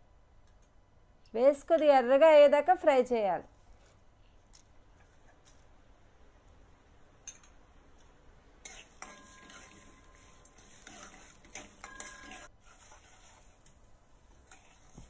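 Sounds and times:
spatula scraping frying seeds: 0:08.6 - 0:15.0.

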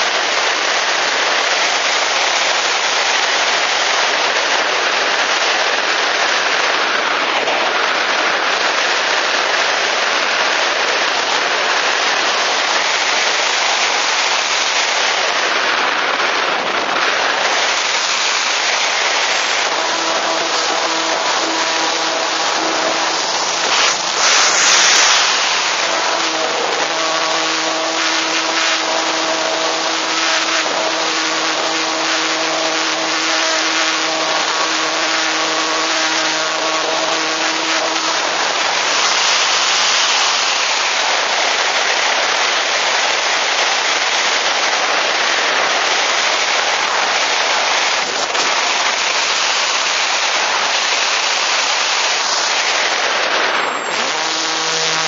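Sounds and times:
air rushing over camera: 0:16.6 - 0:41.7
electric motor and propeller hum: 0:17.0 - 0:42.2, 0:45.8 - 0:55.0.

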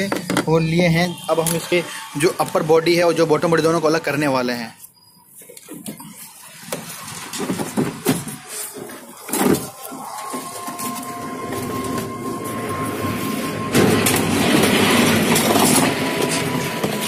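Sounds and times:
plastic parts rubbing and rattling: 0:05.4 - 0:12.6, 0:13.8 - 0:17.0.

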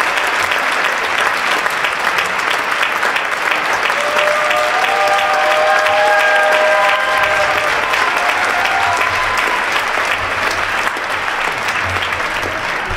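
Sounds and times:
audience applauding: 0:00.0 - 0:12.9
crowd cheering and whooping: 0:03.8 - 0:12.9.

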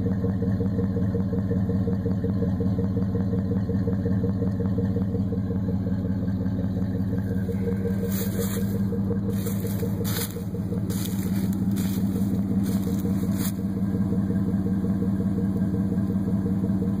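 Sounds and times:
car engine idling: 0:00.0 - 0:17.0
short scuffing noises: 0:07.7 - 0:13.6.

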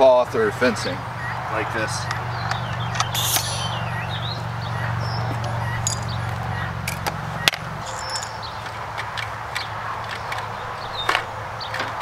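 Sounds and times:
high bird chirps: 0:02.8 - 0:04.4
sharp click: 0:03.0 - 0:03.8.

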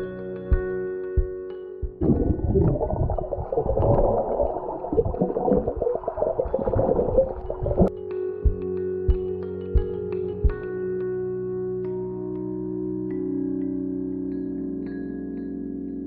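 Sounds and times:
underwater bubbling: 0:02.0 - 0:07.9.

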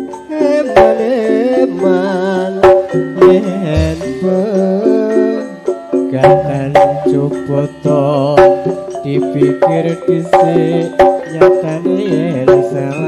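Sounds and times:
hand drum strokes: 0:02.7 - 0:05.4, 0:06.2 - 0:08.8
band melody: 0:03.5 - 0:05.6.

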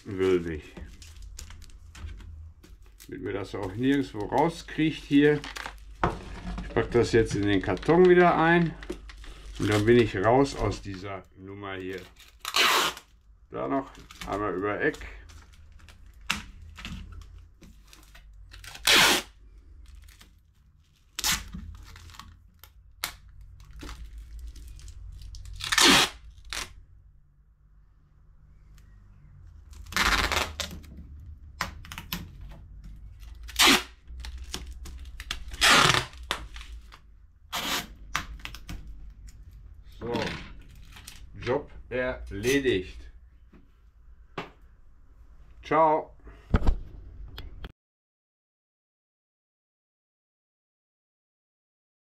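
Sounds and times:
rustling: 0:00.0 - 0:26.8
packing tape pulled off roll: 0:07.4 - 0:11.0, 0:11.8 - 0:13.3, 0:14.0 - 0:26.8, 0:29.7 - 0:30.9, 0:33.1 - 0:39.4.

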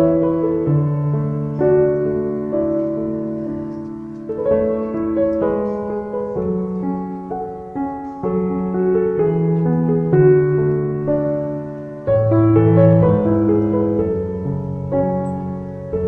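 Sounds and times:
slow piano chords: 0:00.0 - 0:16.0.

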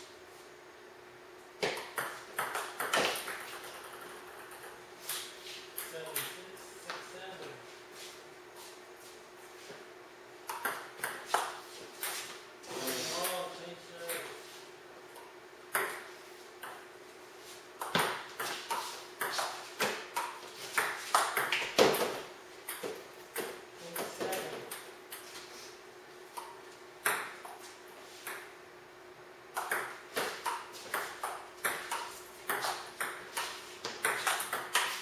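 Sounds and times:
ball bouncing on table: 0:01.6 - 0:04.8
ping pong ball on paddles: 0:10.5 - 0:12.2, 0:29.6 - 0:35.0.

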